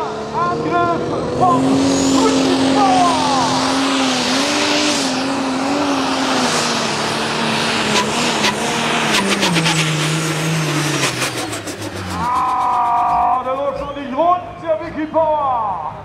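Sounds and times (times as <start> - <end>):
diesel engine running hard: 0.0 - 15.0.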